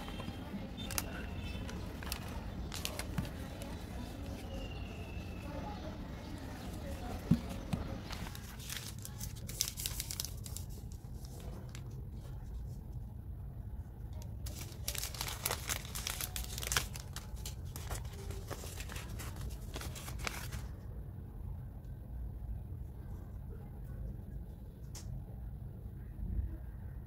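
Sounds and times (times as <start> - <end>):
wrappers crinkling and tearing: 0.0 - 5.4, 6.6 - 11.9, 14.2 - 20.8.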